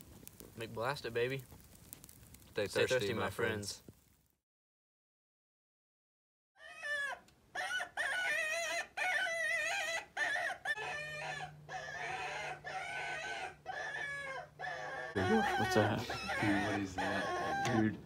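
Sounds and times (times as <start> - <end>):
chickens squawking: 6.6 - 18.0.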